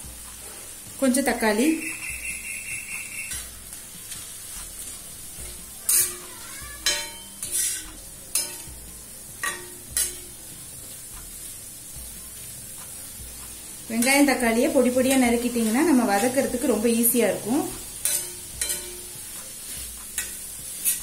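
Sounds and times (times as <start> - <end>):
food sizzling on iron pan: 0.0 - 21.0
spatula scraping pan: 2.0 - 8.7, 13.9 - 21.0.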